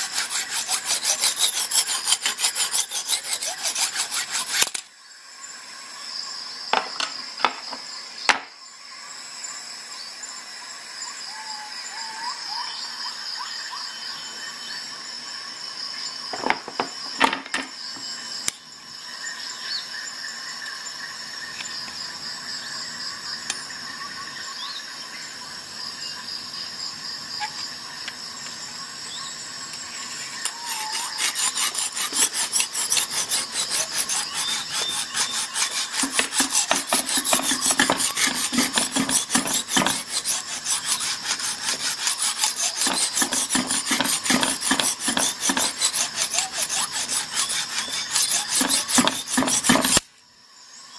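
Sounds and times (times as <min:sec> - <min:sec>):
sharpening hone rasping on knife: 0:00.0 - 0:04.8, 0:30.2 - 0:50.0.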